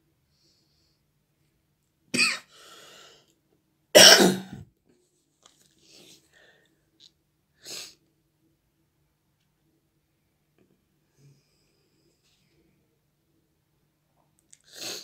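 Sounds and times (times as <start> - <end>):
person coughing: 2.2 - 2.5, 4.0 - 4.6.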